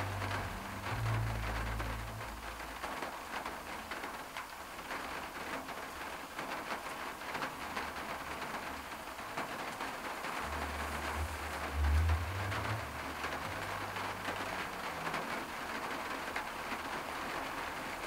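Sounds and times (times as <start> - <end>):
low rumble: 0.0 - 3.0, 10.4 - 14.9
rain pattering on car roof: 0.0 - 18.0.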